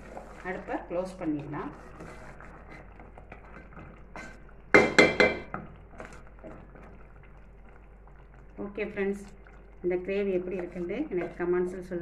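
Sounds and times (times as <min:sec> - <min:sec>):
faint stirring noise: 0:00.0 - 0:12.0
ladle clinking on metal pot: 0:04.2 - 0:05.6.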